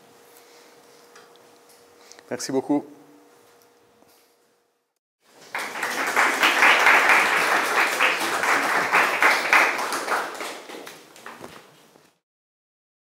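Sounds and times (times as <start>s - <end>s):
audience applauding: 5.4s - 11.4s.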